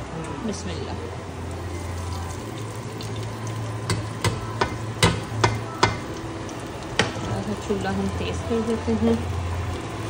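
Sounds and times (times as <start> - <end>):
metal spoon knocking on pot: 3.9 - 6.1.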